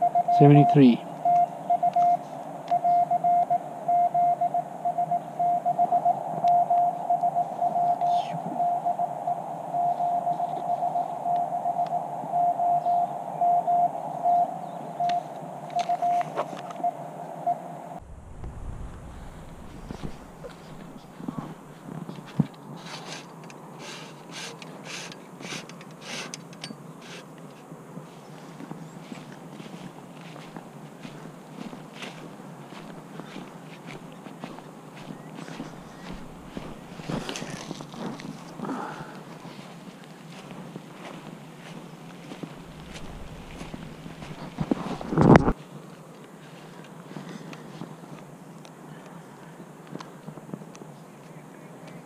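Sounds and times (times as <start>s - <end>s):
morse code tone: 0.0s - 15.2s, 15.8s - 17.7s
faint radio hiss: 6.2s - 26.3s, 27.0s - 52.0s
footsteps on dry leaves: 28.0s - 45.6s.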